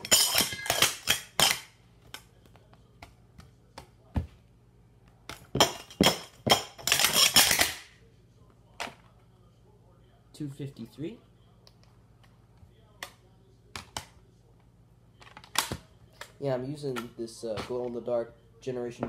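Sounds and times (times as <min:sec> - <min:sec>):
metal cups clattering: 0:00.0 - 0:01.6, 0:05.5 - 0:07.8.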